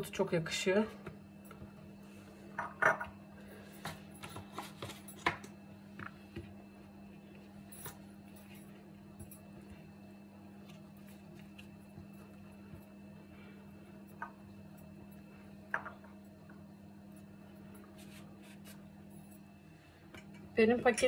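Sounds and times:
steady low hum: 0.0s - 21.0s
hands handling pastry: 3.6s - 6.6s.

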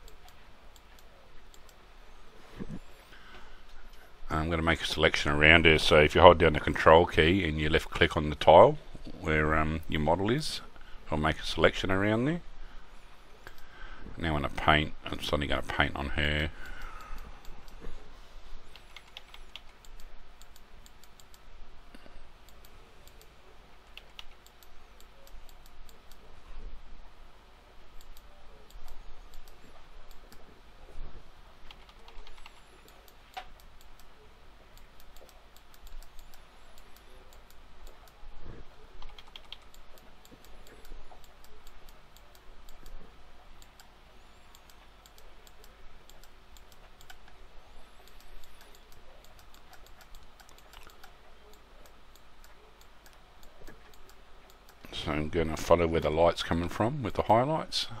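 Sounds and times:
low steady hiss: 0.0s - 58.0s
keyboard and mouse clicks: 18.7s - 26.2s, 28.0s - 30.4s, 31.6s - 34.1s, 34.8s - 38.2s, 39.0s - 43.9s, 44.5s - 54.9s.

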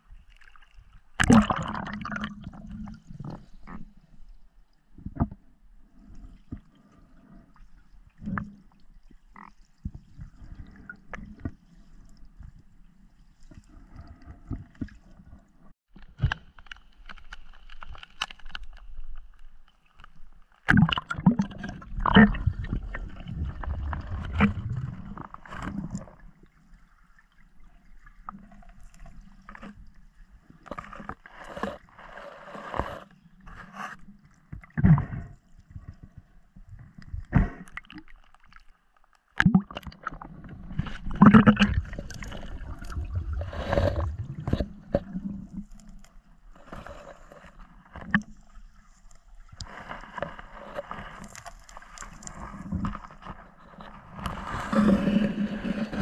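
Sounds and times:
water gurgling: 1.2s - 3.4s, 20.7s - 28.8s, 39.4s - 45.9s
muffled underwater clicks and knocks: 5.0s - 5.5s, 15.9s - 26.2s, 32.5s - 56.0s
water splashing: 39.4s - 45.9s.

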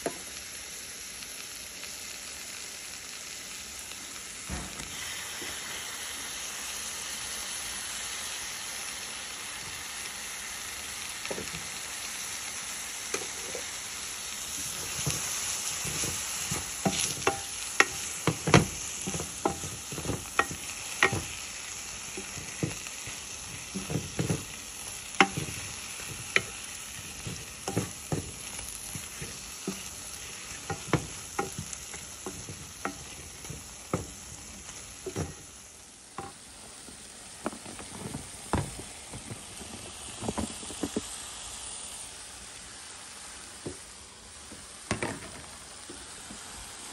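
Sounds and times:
vegetables sizzling in a pot: 0.0s - 46.9s
wooden spoon knocking and scraping: 14.7s - 21.4s, 22.1s - 35.4s.

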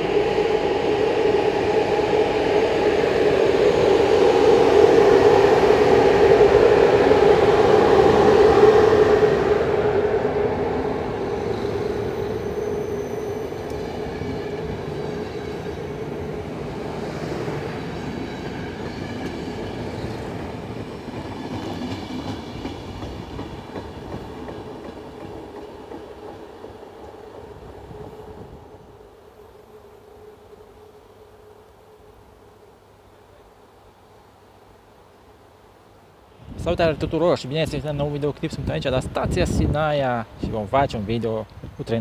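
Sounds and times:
steady whine: 0.0s - 17.4s
train coaches rolling on rails: 0.0s - 27.6s.

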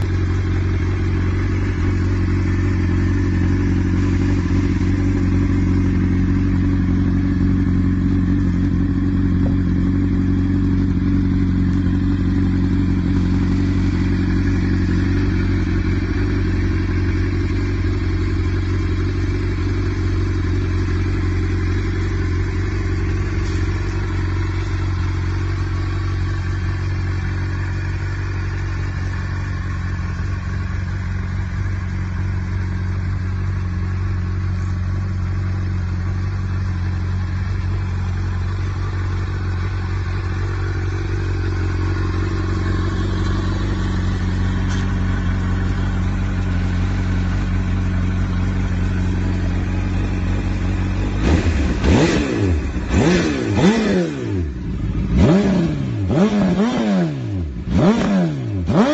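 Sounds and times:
motorcycle engine idling: 0.0s - 58.9s
engine revving: 39.7s - 58.9s.

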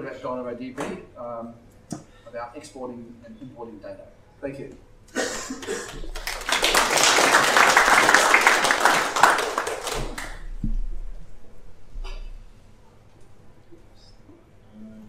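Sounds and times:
audience applauding: 5.6s - 10.5s.

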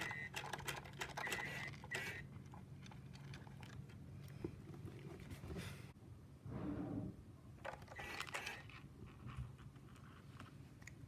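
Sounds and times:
treat dispenser rattling: 0.0s - 3.8s.

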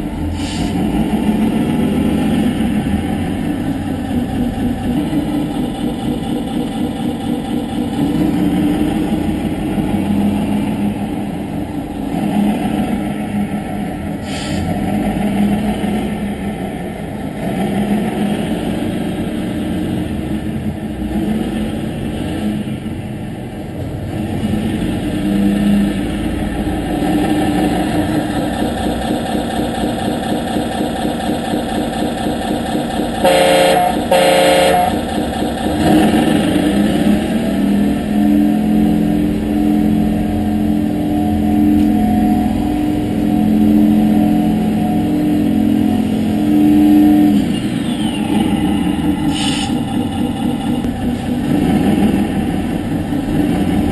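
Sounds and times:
simulated bus engine sound: 0.0s - 53.9s
horn blasts: 33.2s - 35.1s, 38.2s - 47.7s.

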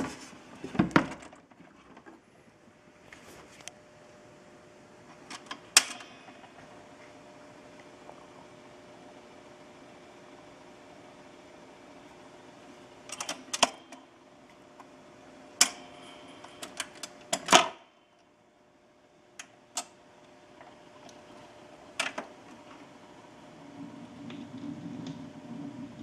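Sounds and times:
faint steady hum: 0.0s - 26.0s
record changer clicks and clunks: 5.1s - 7.1s, 12.1s - 18.3s, 19.3s - 22.9s.

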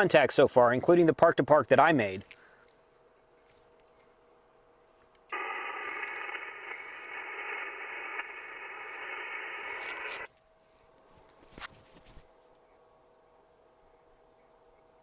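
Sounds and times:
faint steady tones: 2.0s - 11.4s, 12.3s - 15.0s
radio static and hiss: 5.3s - 10.3s.

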